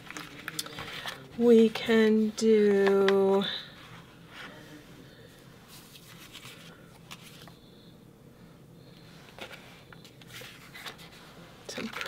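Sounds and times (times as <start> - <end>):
paper sticker sheets rustling: 0.0 - 1.7, 5.7 - 7.6, 9.3 - 12.0.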